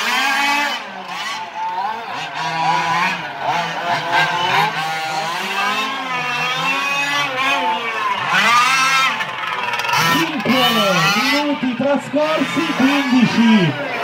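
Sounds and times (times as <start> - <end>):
rc car engines revving: 0.0 - 14.0.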